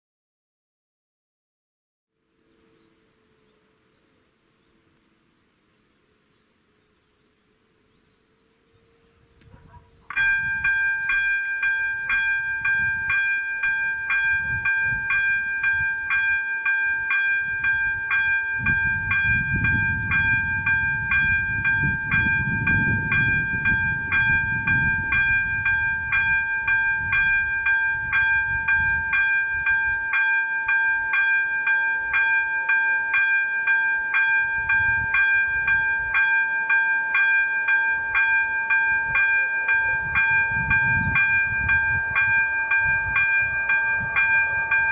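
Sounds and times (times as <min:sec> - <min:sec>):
level-crossing bell ringing: 0:10.0 - 0:44.9.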